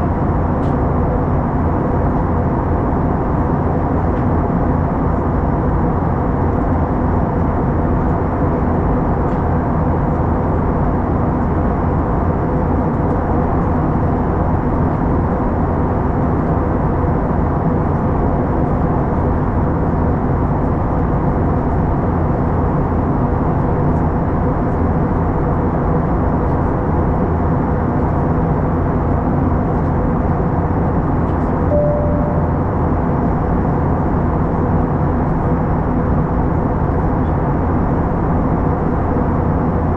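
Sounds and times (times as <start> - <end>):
airplane engine and airflow roar: 0.0 - 39.9
faint steady hum: 31.7 - 33.7.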